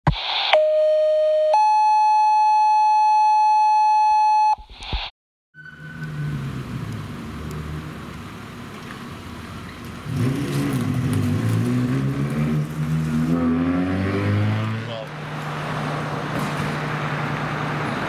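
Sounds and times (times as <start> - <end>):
two-tone pager alert: 0.6 - 4.6
street traffic: 5.6 - 18.0.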